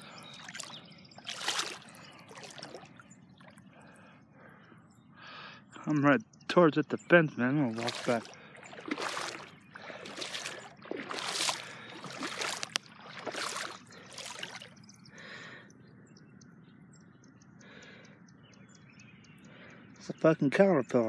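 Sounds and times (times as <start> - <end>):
wading through water: 0.0 - 4.8, 5.8 - 15.7.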